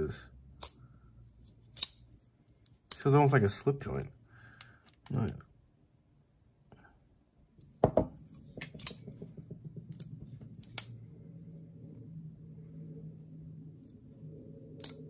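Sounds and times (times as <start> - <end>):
faint low hum: 0.0 - 15.0
metallic clicks and taps: 8.6 - 11.0, 14.7 - 15.0.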